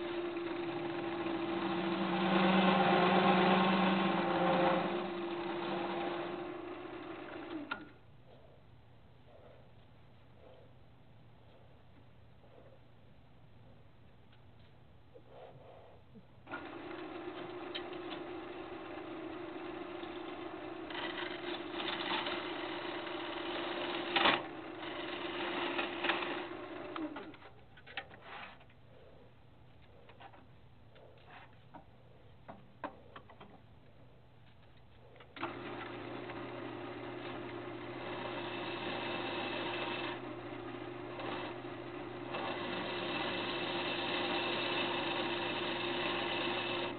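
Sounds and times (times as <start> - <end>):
lathe motor hum: 0.0 - 7.9, 16.5 - 27.3, 35.4 - 46.9
turning tool scraping wood: 0.0 - 8.0, 16.5 - 28.8, 35.0 - 46.9.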